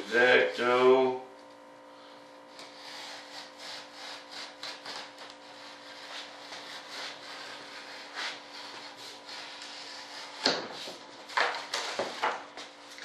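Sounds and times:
faint steady hum: 0.0s - 13.0s
hand tool scratching cardboard: 2.5s - 12.3s.

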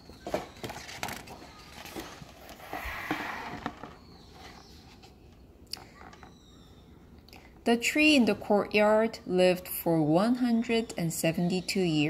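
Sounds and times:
book page turning: 0.3s - 5.1s.

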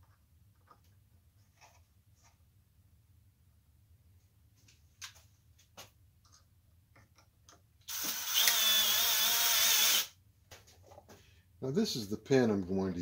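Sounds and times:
cordless drill drilling into wood: 7.9s - 10.2s.

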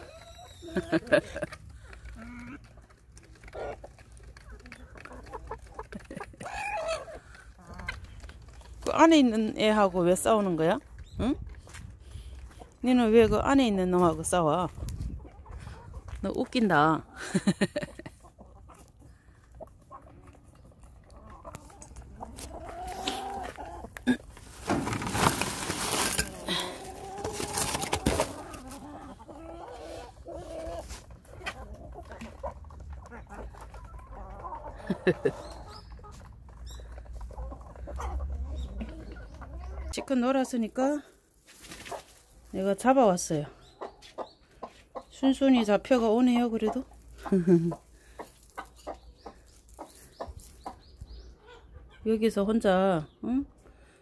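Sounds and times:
chickens clucking: 0.0s - 54.0s
scuffling: 22.4s - 28.9s.

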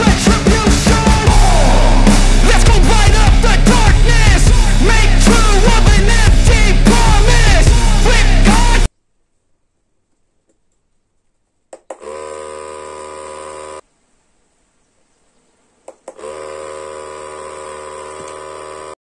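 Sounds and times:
small motor buzzing: 11.9s - 13.8s, 16.1s - 19.0s.

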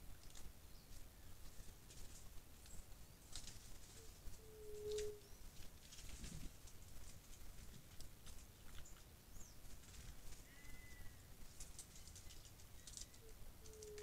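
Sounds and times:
soft ticks and rustles: 0.0s - 14.0s
whistled bird note: 4.4s - 5.4s, 10.4s - 11.2s.

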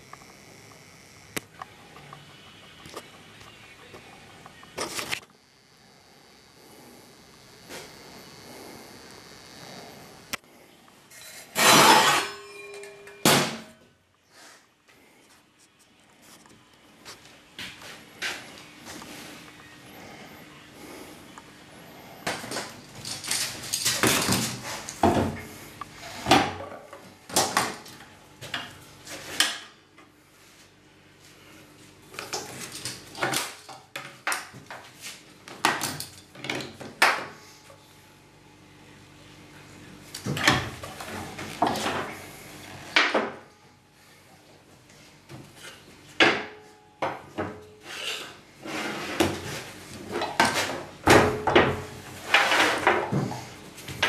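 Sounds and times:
metal parts clunking on workbench: 11.4s - 13.7s.

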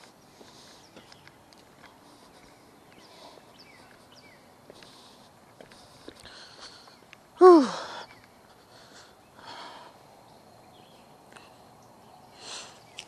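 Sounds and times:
breathing: 0.3s - 1.1s, 1.8s - 7.0s, 7.6s - 10.1s, 12.3s - 13.0s.

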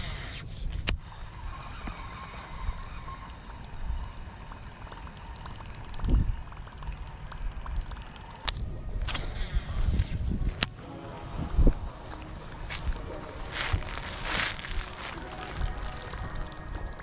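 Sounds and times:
water splashing and trickling: 1.0s - 17.0s.

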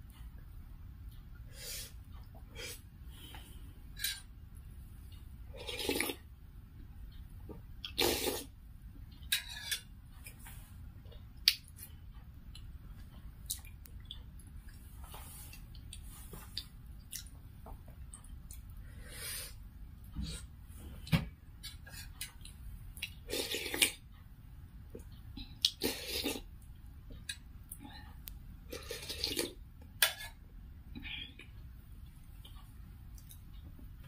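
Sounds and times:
wet chewing and mouth smacks: 12.5s - 14.8s, 15.6s - 18.7s.

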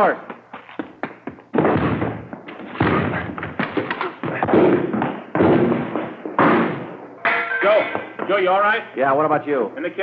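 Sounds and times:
heavy thuds and crashes on doors: 1.2s - 7.0s.

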